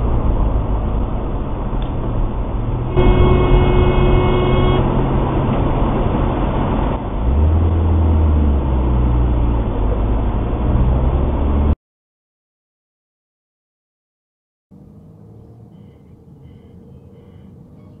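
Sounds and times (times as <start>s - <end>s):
car engine drone: 0.0s - 11.8s, 14.7s - 17.8s
road noise: 0.0s - 11.8s, 14.7s - 18.0s
steady tone: 2.9s - 7.0s.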